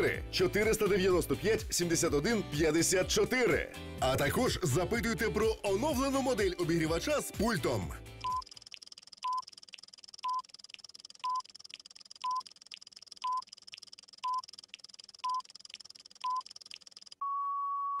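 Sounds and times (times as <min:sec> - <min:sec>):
countdown timer beeping: 0:08.2 - 0:08.5
faint ticks: 0:08.3 - 0:17.2
long steady beep: 0:10.2 - 0:10.5, 0:11.2 - 0:11.5, 0:13.2 - 0:13.5, 0:15.2 - 0:15.5, 0:17.2 - 0:18.0.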